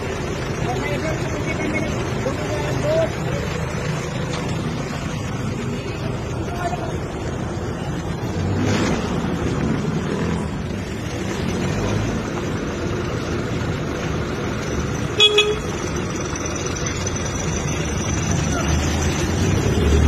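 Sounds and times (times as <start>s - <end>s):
engine rumble: 0.0s - 20.0s
street noise: 0.0s - 20.0s
vehicle horn honks: 15.2s - 15.8s.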